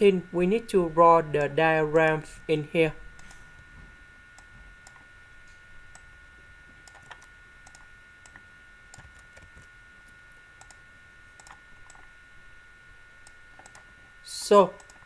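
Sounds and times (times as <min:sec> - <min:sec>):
high electrical whine: 0:00.0 - 0:15.0
computer mouse and keyboard clicking: 0:06.8 - 0:10.8, 0:11.4 - 0:12.1, 0:13.2 - 0:15.0.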